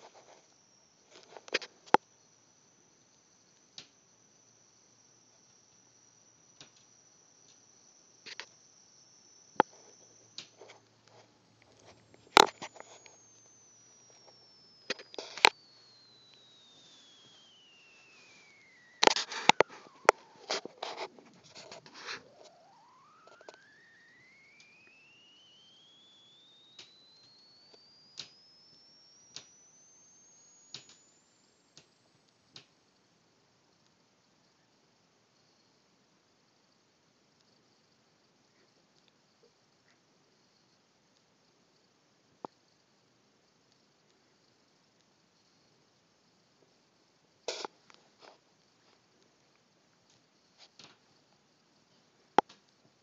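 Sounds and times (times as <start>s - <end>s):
faint ticks: 0.0s - 33.1s
faint high-pitched whine: 0.0s - 53.0s
faint sharp clicks: 6.5s - 32.8s.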